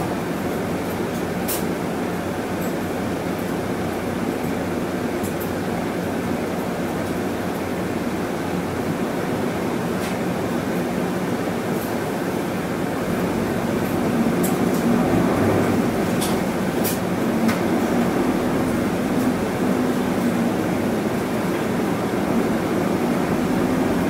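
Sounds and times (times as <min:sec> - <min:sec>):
bus engine hum: 0:11.8 - 0:24.0.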